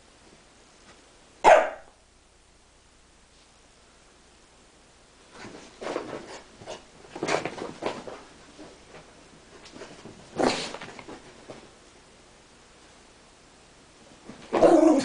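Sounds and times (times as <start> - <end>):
puppy barking: 1.4 - 2.0.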